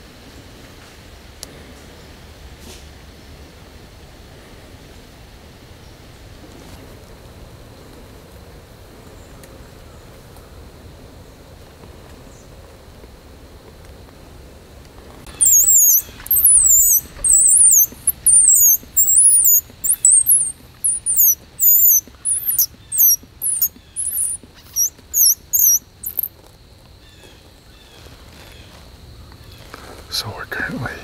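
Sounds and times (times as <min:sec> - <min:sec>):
shrill squeals blown on grass: 0:15.3 - 0:26.3.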